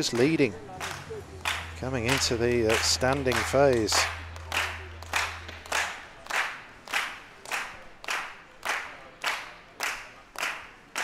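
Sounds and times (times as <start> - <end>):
crowd clapping in unison: 0.0 - 11.0.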